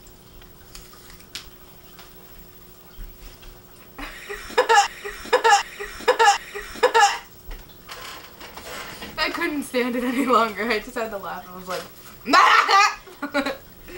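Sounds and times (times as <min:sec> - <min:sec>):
woman laughing: 0:04.0 - 0:07.3, 0:12.3 - 0:13.6.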